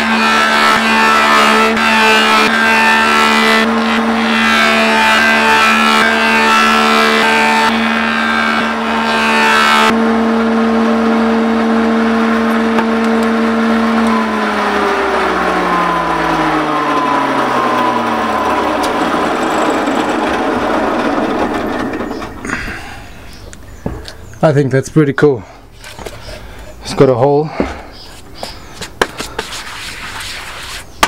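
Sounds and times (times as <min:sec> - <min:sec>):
planer cutting wood: 0:00.0 - 0:24.2, 0:27.6 - 0:31.0
machine humming: 0:00.0 - 0:24.4.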